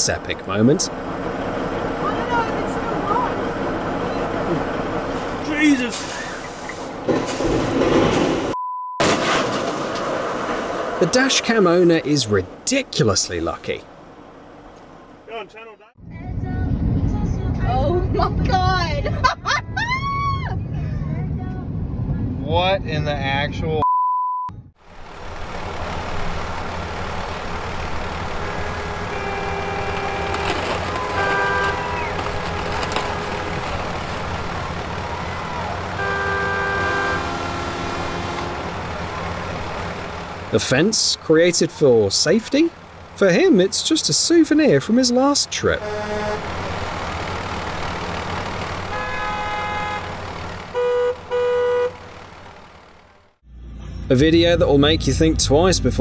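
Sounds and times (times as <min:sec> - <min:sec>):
car engine and road noise: 0:00.0 - 0:23.9, 0:24.5 - 0:56.0
censor bleep: 0:08.6 - 0:09.0, 0:23.8 - 0:24.6
steady low rumble: 0:16.0 - 0:23.8
vehicle horn honking: 0:28.2 - 0:33.6, 0:35.9 - 0:38.8, 0:45.8 - 0:46.5, 0:48.9 - 0:52.1.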